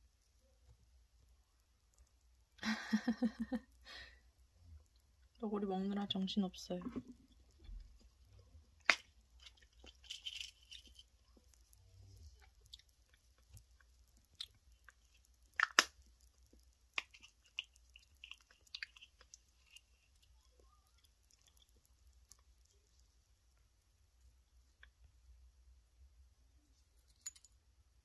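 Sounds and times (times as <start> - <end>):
hamster teeth crunching food: 6.8 - 25.2.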